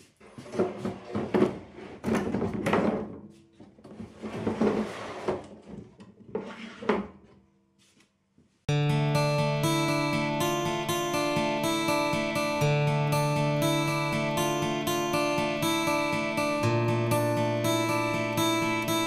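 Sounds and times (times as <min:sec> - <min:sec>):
acoustic guitar music: 0:08.7 - 0:19.0.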